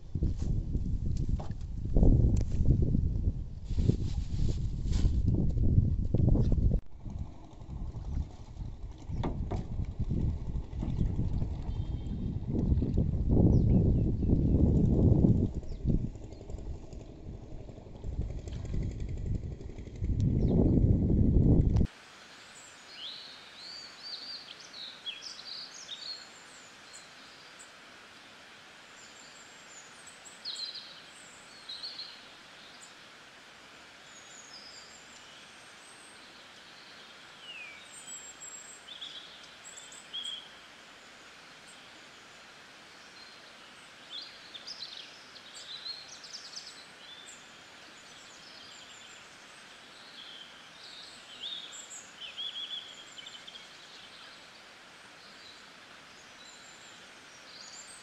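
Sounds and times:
quiet outdoor hiss: 21.6s - 58.0s.

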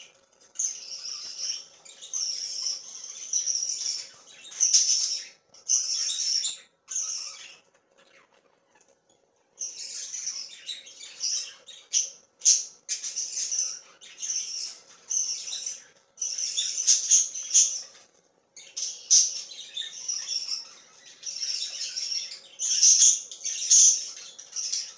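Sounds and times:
budgerigars chirping and squawking: 0.0s - 24.9s.

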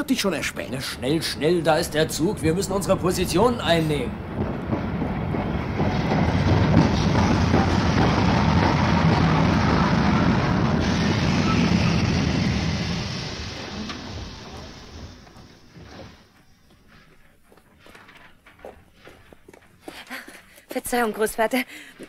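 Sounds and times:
train rumbling into station: 0.0s - 16.5s.

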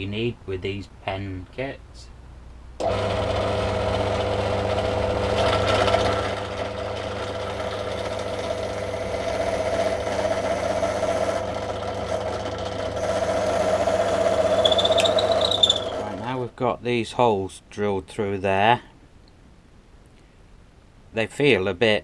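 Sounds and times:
drill bit cutting wood: 2.8s - 16.4s
drill press motor humming: 2.8s - 16.4s.

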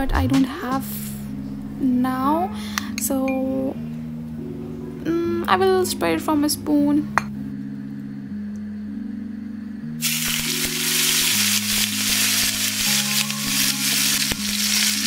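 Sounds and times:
background music chords: 0.0s - 15.0s
fish frying in oil: 10.0s - 15.0s.

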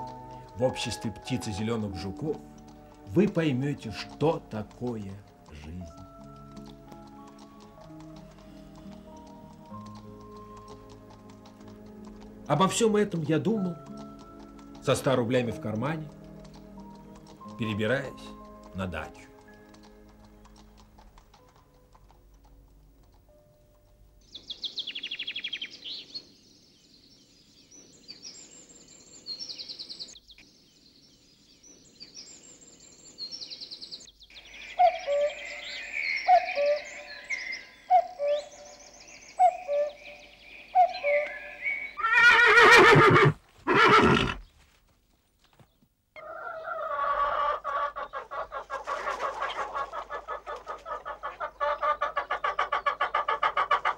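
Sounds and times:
birds chirping and singing: 0.0s - 20.9s, 24.2s - 44.6s, 45.4s - 53.9s
horse whinnying: 42.0s - 44.4s
hens clucking: 46.2s - 53.9s.

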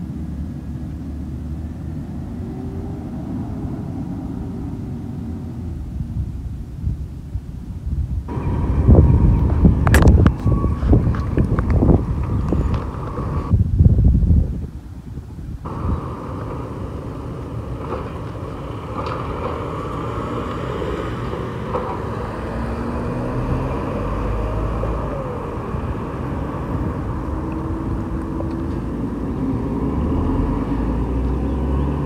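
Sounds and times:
garbage truck engine running: 15.6s - 31.4s.

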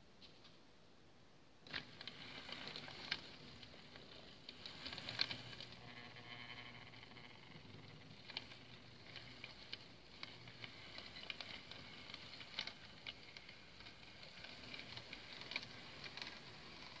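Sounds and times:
model train wheels clicking: 1.6s - 17.0s.

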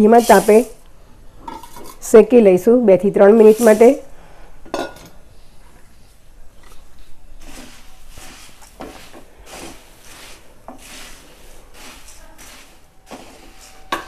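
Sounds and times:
puffed rice rustling: 3.3s - 4.0s, 6.7s - 14.0s
spatula scraping pan: 7.4s - 14.0s.

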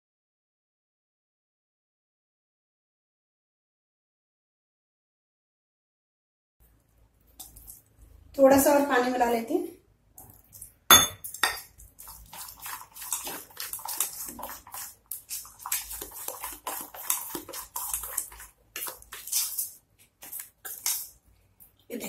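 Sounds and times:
spoon stirring wet batter: 6.6s - 8.8s, 10.2s - 22.0s.

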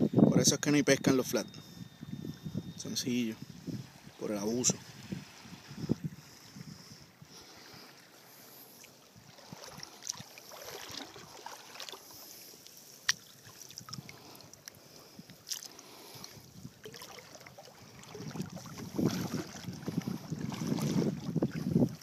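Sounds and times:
wind buffeting microphone: 0.0s - 7.5s, 16.3s - 22.0s
seawater sloshing and splashing: 7.5s - 22.0s.

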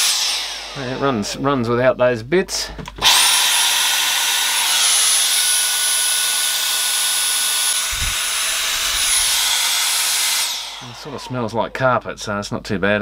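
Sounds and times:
high-pitched motor whine: 0.0s - 1.3s, 4.3s - 11.6s
low bump: 7.8s - 9.6s
rush of air: 7.8s - 9.6s.

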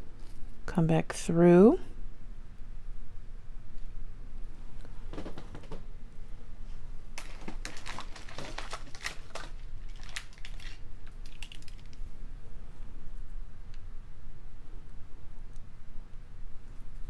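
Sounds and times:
clicks and rustles of beading wire: 7.2s - 12.1s.

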